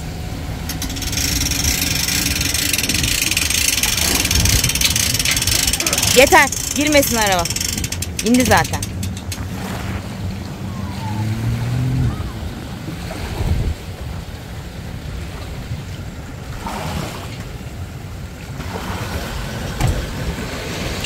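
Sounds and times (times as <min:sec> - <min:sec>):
low engine hum: 0:00.0 - 0:21.0
wind buffeting microphone: 0:00.0 - 0:21.0
small waves washing in: 0:09.3 - 0:21.0.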